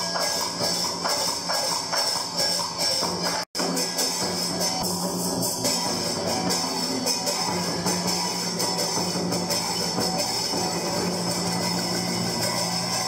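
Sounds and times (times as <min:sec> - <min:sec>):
plucked strings and drums music: 0:00.0 - 0:13.0.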